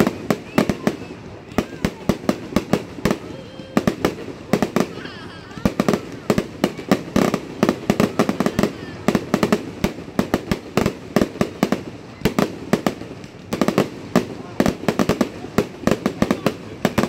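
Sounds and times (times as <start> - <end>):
fireworks bangs and cracks: 0.0 - 17.0.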